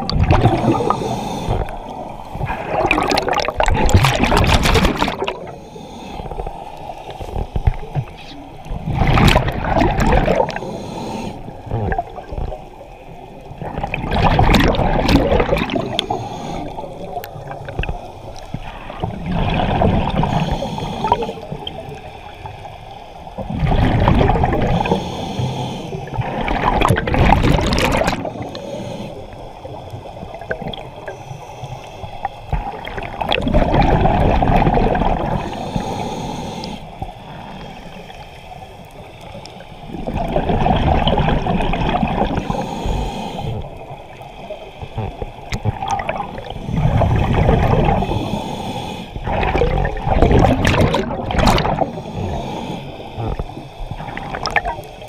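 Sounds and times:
water wash: 0.0s - 1.8s, 2.4s - 5.5s, 7.2s - 10.6s, 13.6s - 21.9s, 26.1s - 28.6s, 49.2s - 52.6s
exhaled bubbles gurgling: 0.0s - 31.3s, 31.9s - 55.0s.

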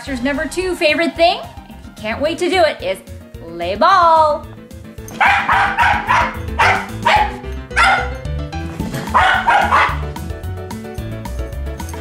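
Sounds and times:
background music with bass line: 0.0s - 12.0s
dog barking sharply: 5.2s - 8.2s, 9.1s - 10.1s.

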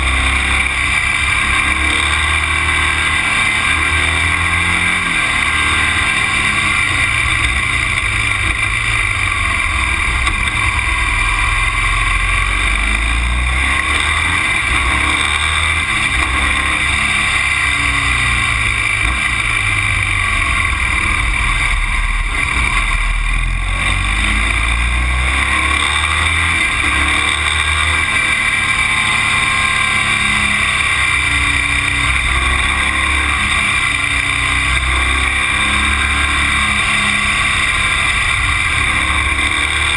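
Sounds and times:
vehicle engine running: 0.0s - 39.9s.

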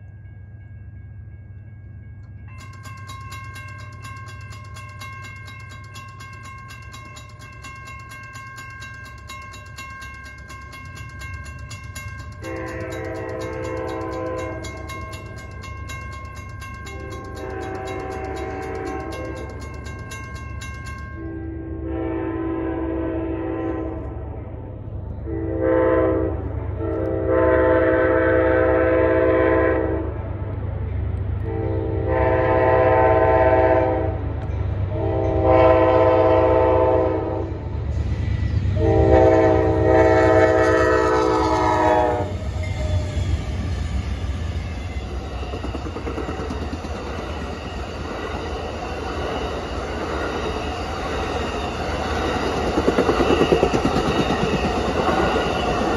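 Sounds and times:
train wheels rumbling on rails: 0.0s - 55.9s
rhythmic clickety-clack: 1.5s - 21.4s, 39.6s - 55.9s
locomotive air horn blasts: 12.4s - 14.8s, 17.0s - 19.4s, 21.3s - 24.1s, 25.2s - 30.1s, 31.4s - 34.2s, 34.9s - 37.6s, 38.8s - 42.4s.

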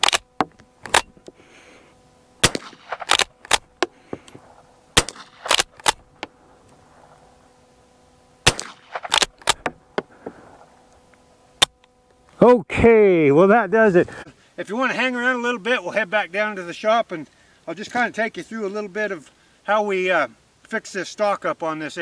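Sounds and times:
rifle shots: 2.4s - 6.1s, 8.4s - 9.7s.

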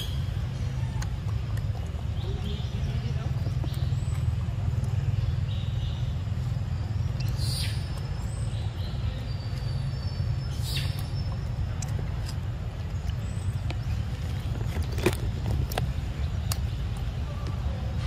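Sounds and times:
high bird chirps: 2.2s - 11.9s.

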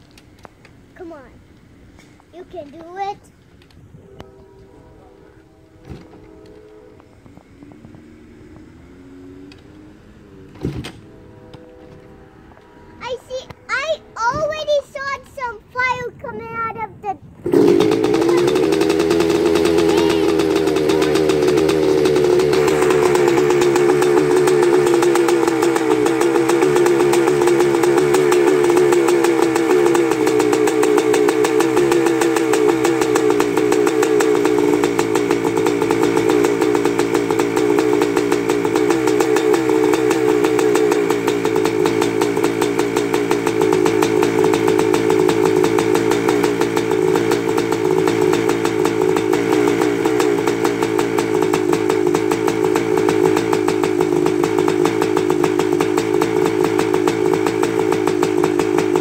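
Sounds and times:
two-stroke engine idling: 17.4s - 59.0s.

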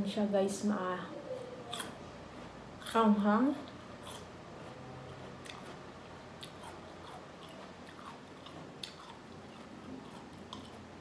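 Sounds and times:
chewing crunchy food: 3.6s - 11.0s.

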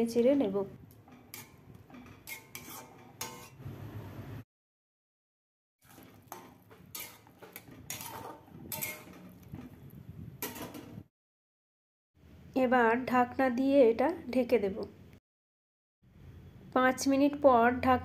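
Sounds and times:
metal spatula scraping a metal pan: 1.0s - 3.7s, 5.8s - 11.1s.

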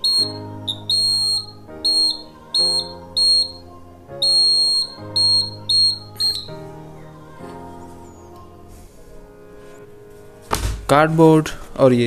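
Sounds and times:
high-pitched alarm beeps: 0.0s - 6.6s
background music: 0.0s - 12.0s.

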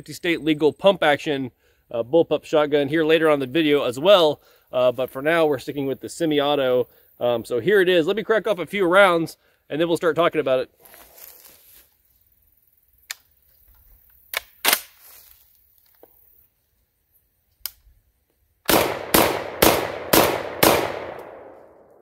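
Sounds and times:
shotgun shots echoing: 18.7s - 21.9s.

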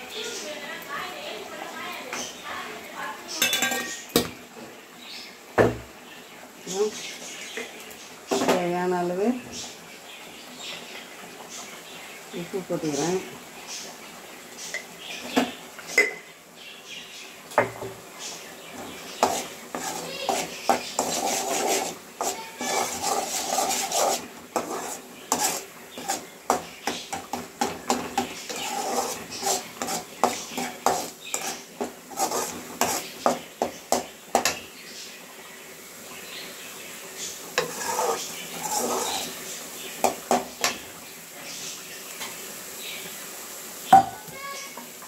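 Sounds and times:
spoon scraping a cooking pan: 3.4s - 4.3s, 18.8s - 34.7s, 37.2s - 40.8s.

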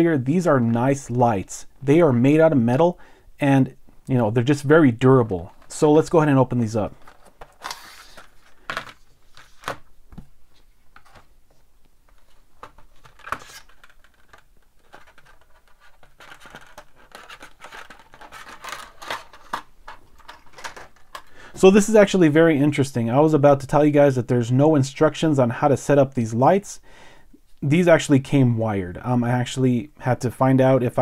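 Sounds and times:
plastic blister pack crinkling: 6.9s - 9.9s, 12.1s - 21.4s.

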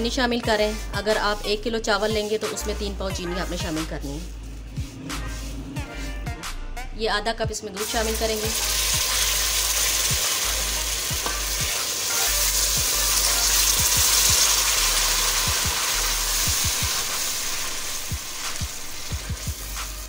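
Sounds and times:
spatula stirring: 3.4s - 6.0s
syrup sizzling in a steel pan: 7.8s - 20.0s.

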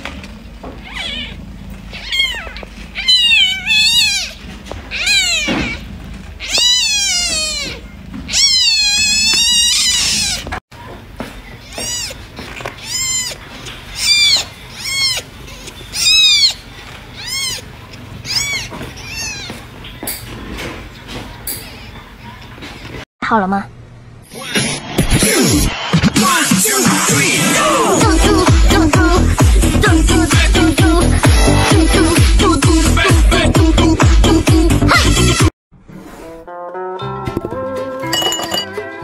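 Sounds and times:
kittens mewing: 0.8s - 10.6s, 11.6s - 19.8s.

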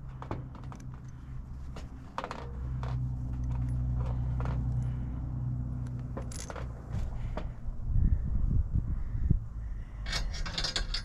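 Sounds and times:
low motor drone: 0.0s - 10.1s
metal hardware clicking: 10.0s - 11.0s.

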